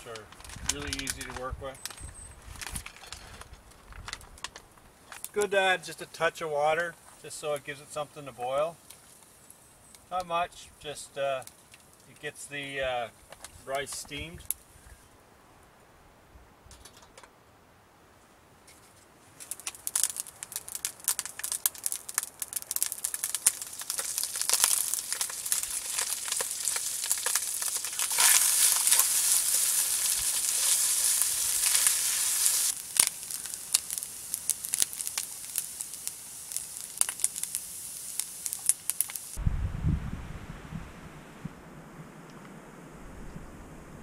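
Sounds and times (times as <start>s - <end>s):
food sizzling in frying pan: 19.5s - 39.4s.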